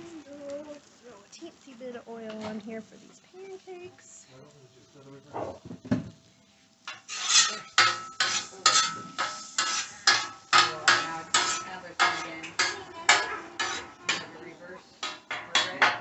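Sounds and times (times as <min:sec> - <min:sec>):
metal spatula scraping griddle: 0:06.9 - 0:16.0.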